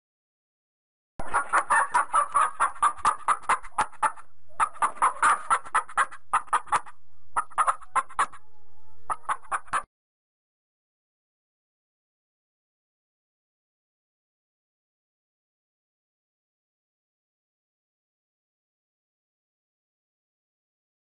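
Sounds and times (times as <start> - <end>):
chickens clucking and cackling: 1.2 - 9.9.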